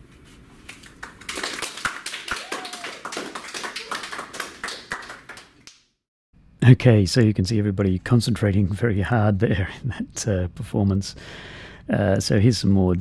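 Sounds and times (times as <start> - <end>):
small group clapping: 0.7 - 5.9.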